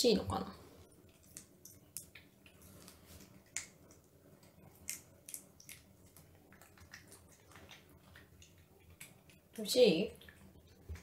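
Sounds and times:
cat chewing clicks: 3.4 - 9.6.

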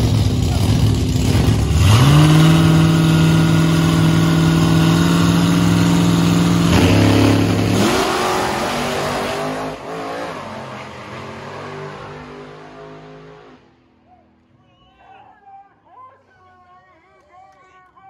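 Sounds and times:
car engine revving and accelerating: 0.0 - 13.6.

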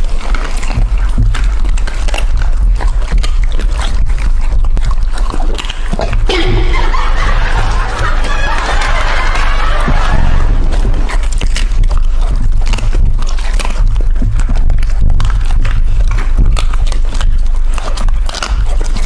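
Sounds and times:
animals crunching on bones: 0.0 - 6.3, 10.5 - 19.0
low hum: 6.3 - 14.5.

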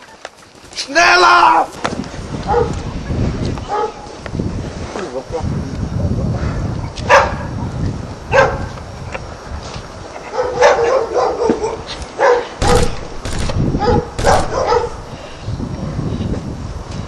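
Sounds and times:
dog barking: 2.5 - 2.8, 3.7 - 4.0, 7.1 - 7.5, 8.3 - 8.7, 10.3 - 12.9, 13.8 - 15.0.

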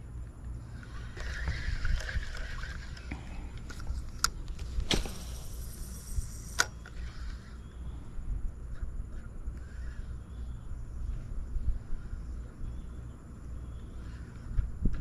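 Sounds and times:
fishing reel whirring: 0.6 - 8.2
fishing reel click: 0.7 - 4.4, 5.5 - 7.6
wind on microphone: 0.8 - 4.0, 14.5 - 15.0.

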